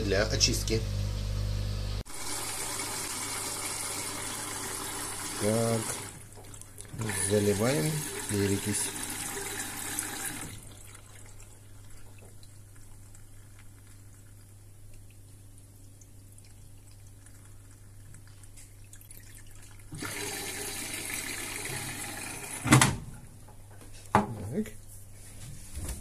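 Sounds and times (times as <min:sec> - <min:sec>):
low machine hum: 0:00.0 - 0:02.0.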